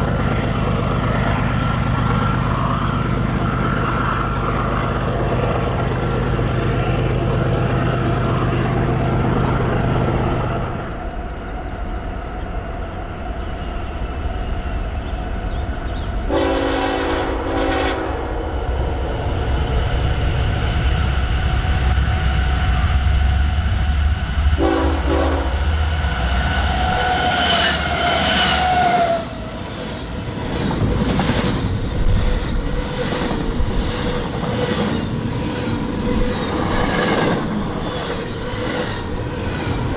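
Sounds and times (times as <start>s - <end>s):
locomotive engines humming: 0.0s - 39.9s
rail car wheel clatter: 0.0s - 39.9s
train air horn: 16.3s - 18.4s, 24.6s - 25.7s, 26.7s - 29.4s.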